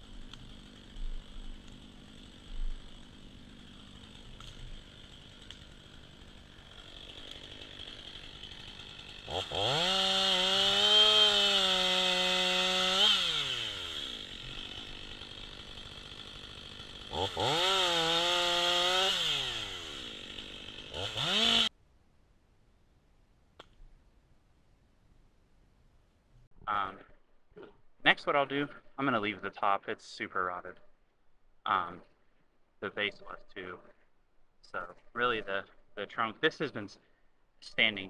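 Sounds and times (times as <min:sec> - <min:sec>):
chainsaw idling and revving: 0:00.0 - 0:21.7.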